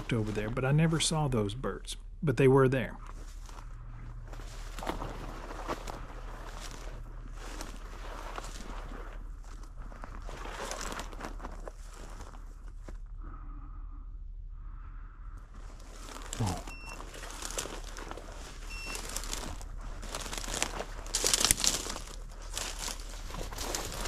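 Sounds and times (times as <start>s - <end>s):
footsteps through dry brush: 0.0s - 1.3s, 3.0s - 13.0s, 15.5s - 24.0s.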